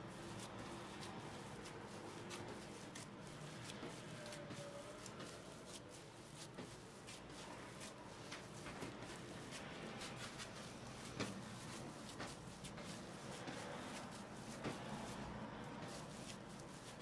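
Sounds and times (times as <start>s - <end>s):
hands kneading dough on wood: 0.0s - 17.0s.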